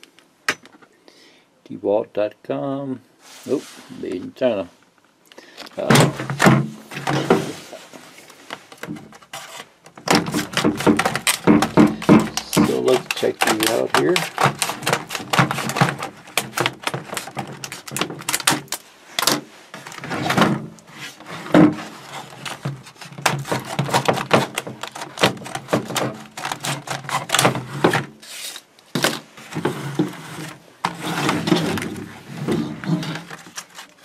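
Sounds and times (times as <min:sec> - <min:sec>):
scissors cutting plastic: 0:08.7 - 0:19.3, 0:22.1 - 0:29.2
plastic blister pack crackling: 0:10.0 - 0:18.9.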